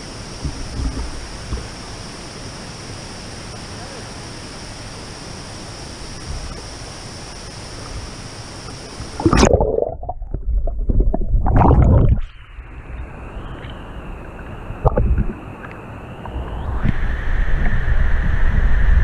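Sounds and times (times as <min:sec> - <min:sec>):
underwater bubbling and gurgling: 0:00.0 - 0:02.1, 0:06.0 - 0:19.0
flowing water rushing: 0:00.0 - 0:18.0
water splash: 0:09.2 - 0:12.4.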